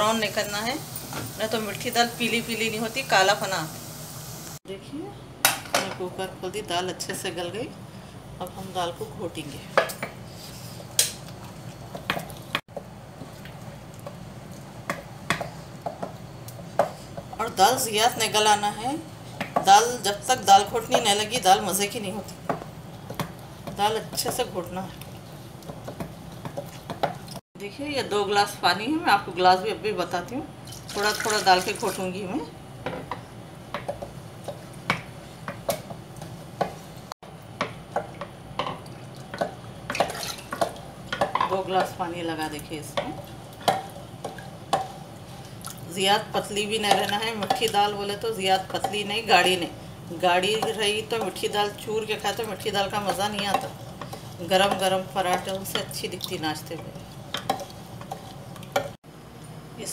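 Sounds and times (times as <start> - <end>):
wood knocking against pot: 37.6 - 42.0
wooden masher mashing lentils: 46.1 - 59.0.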